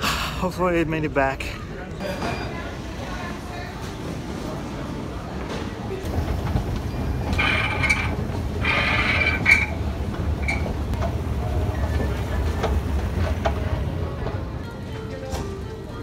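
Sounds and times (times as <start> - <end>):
escalator mechanical rumble: 6.1 - 14.6.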